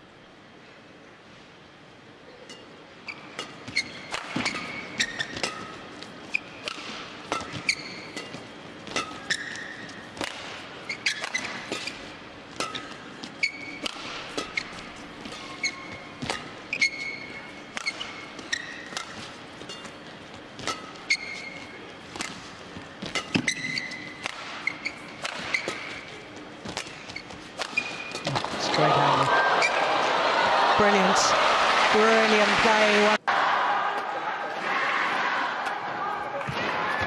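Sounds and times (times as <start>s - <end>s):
shoes squeaking on court: 2.5s - 29.8s
rackets striking shuttlecock: 3.3s - 28.6s.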